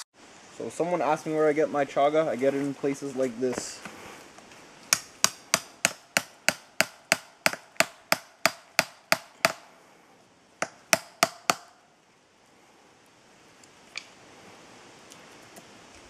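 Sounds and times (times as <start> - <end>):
hammer striking chisel: 4.9 - 9.6, 10.6 - 11.7.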